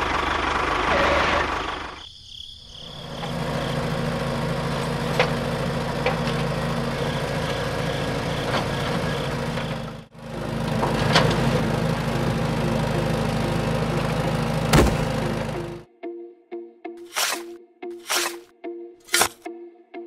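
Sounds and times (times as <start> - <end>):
small gear motors humming: 2.9 - 15.8, 17.0 - 18.5.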